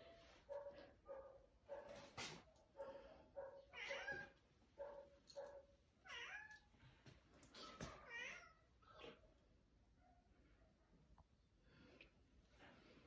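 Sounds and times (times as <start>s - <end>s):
cats meowing: 3.7s - 4.4s, 6.0s - 6.7s, 7.6s - 9.2s.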